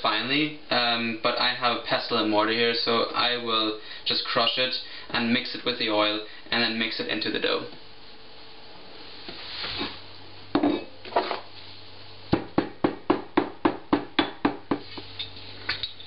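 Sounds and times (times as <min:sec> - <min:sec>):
stone pestle knocking stone: 0:12.3 - 0:14.8.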